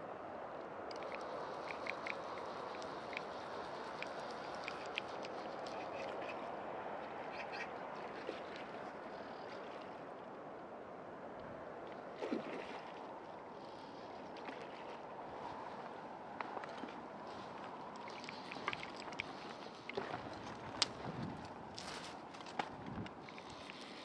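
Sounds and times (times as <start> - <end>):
outdoor background noise: 0.0 - 24.0
faint ticks: 0.9 - 6.2, 17.6 - 24.0.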